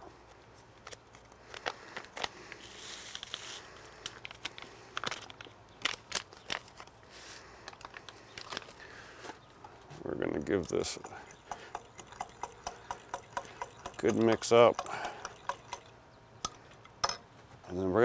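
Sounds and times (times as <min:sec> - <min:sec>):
seasoning packets crinkling: 0:00.8 - 0:07.0
seasoning pouring into glass cup: 0:10.4 - 0:15.9.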